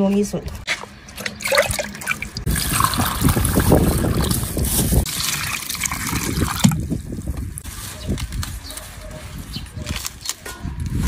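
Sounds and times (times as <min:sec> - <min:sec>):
water splashing and trickling: 0:01.0 - 0:07.4.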